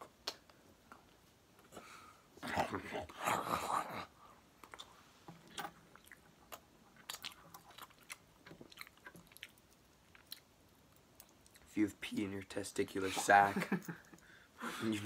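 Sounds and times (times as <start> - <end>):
crisp chewing and crunching: 4.6 - 11.7.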